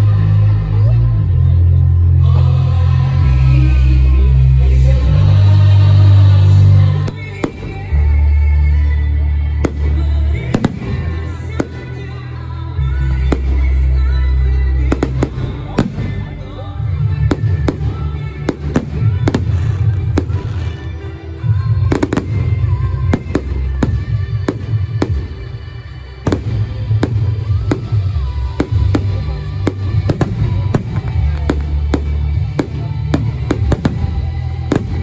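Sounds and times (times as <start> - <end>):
loud music with heavy bass: 0.0 - 35.0
fireworks bursting: 7.0 - 8.2, 9.5 - 35.0.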